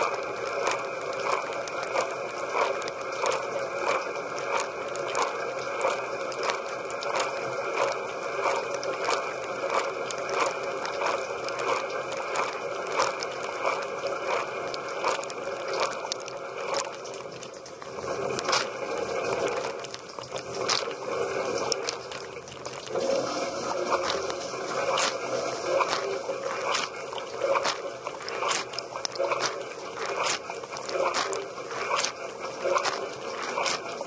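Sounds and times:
dishwasher water jets spraying: 0:16.7 - 0:34.0.

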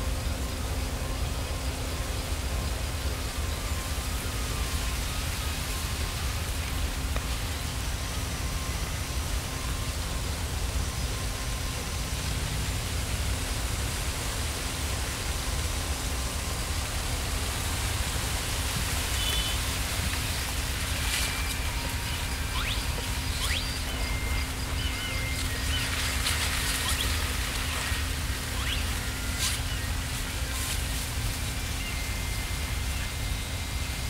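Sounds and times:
wind through plants: 0:00.0 - 0:34.0
high chirp: 0:21.0 - 0:31.0.

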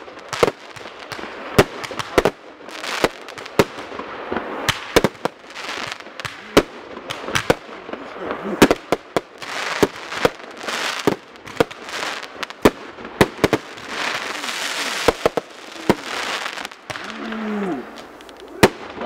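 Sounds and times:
fireworks bangs: 0:00.0 - 0:19.0
fireworks crackling: 0:00.0 - 0:19.0.

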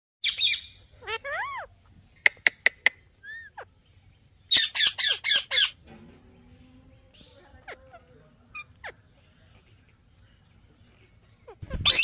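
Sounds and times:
parrot squawking and screeching: 0:00.2 - 0:03.7, 0:04.5 - 0:05.8, 0:07.4 - 0:09.1, 0:11.4 - 0:12.0
parrot whistling: 0:11.6 - 0:12.0.

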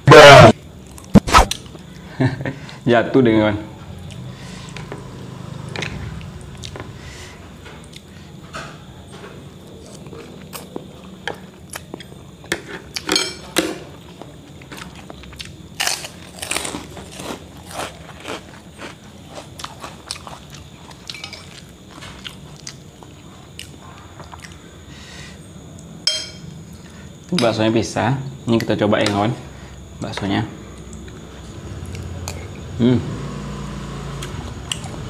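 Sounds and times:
wet chewing: 0:14.6 - 0:24.6.

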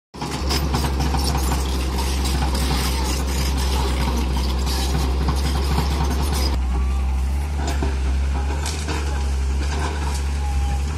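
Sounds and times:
excavator bucket clinks and rattles: 0:00.2 - 0:06.6
excavator diesel engine droning: 0:00.2 - 0:10.9.

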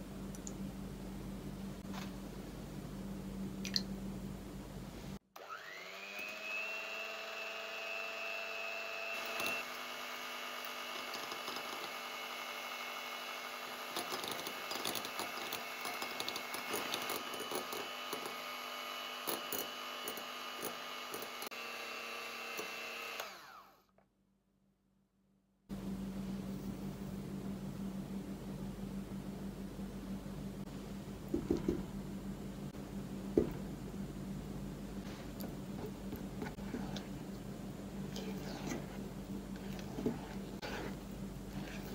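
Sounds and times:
electric hand mixer whining: 0:05.4 - 0:23.8.

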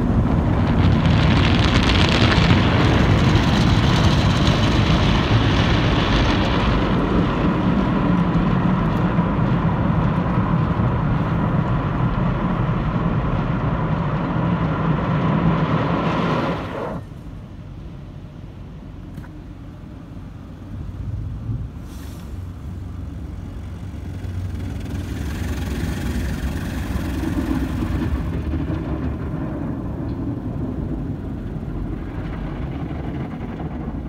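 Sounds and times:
car wash equipment rumbling: 0:00.0 - 0:34.0
car wash hiss: 0:21.8 - 0:23.0.

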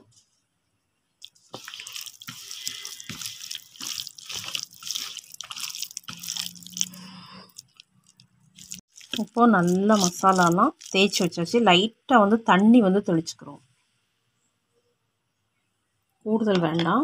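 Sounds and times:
hand squishing fish in wet paste: 0:01.2 - 0:11.4.

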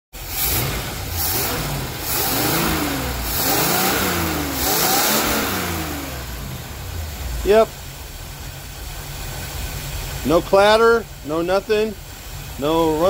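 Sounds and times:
car engine revving: 0:00.2 - 0:10.5.

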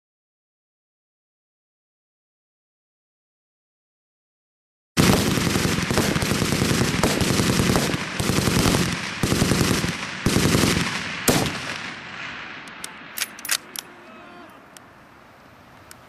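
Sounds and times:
rapid gunfire: 0:05.0 - 0:12.2
single sharp gunshot: 0:10.8 - 0:12.8.

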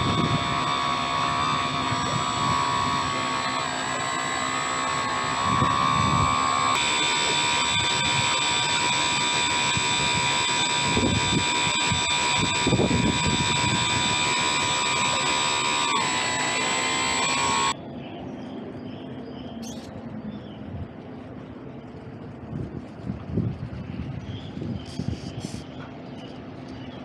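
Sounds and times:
model boat motor whine: 0:00.0 - 0:17.8.

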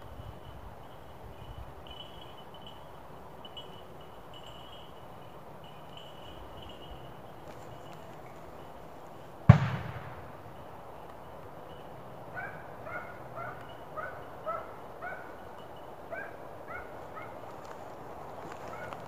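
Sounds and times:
shotgun shot: 0:09.5 - 0:10.3
hound barking: 0:12.3 - 0:15.4, 0:16.1 - 0:17.4, 0:18.6 - 0:19.0.

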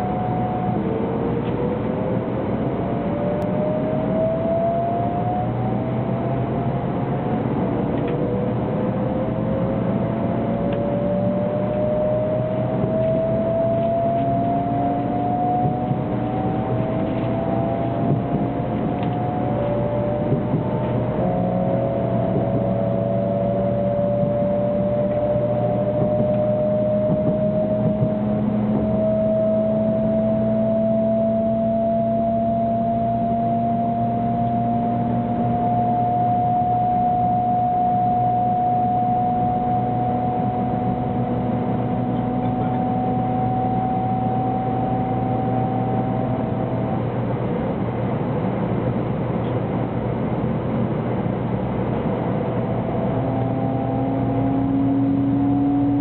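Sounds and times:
train motors whining: 0:07.3 - 0:30.6
train rolling rumble: 0:11.7 - 0:30.5, 0:45.9 - 0:53.6.

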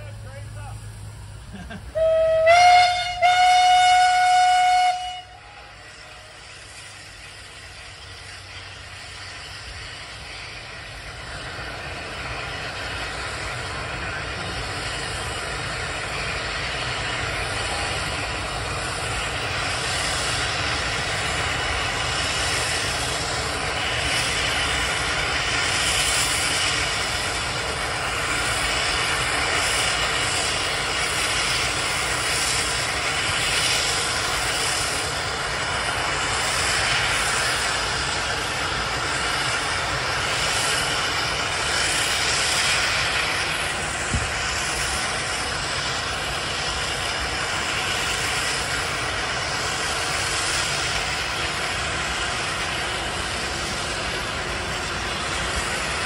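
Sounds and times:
steam engine exhaust hissing and puffing: 0:00.0 - 0:56.0
steam whistle blast: 0:01.9 - 0:06.4.

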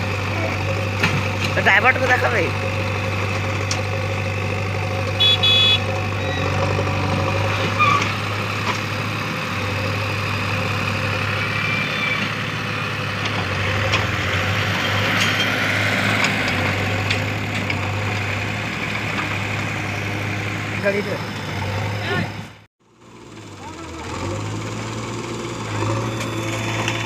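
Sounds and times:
diesel engine running: 0:00.0 - 0:27.0
vehicle horn: 0:05.1 - 0:06.0.

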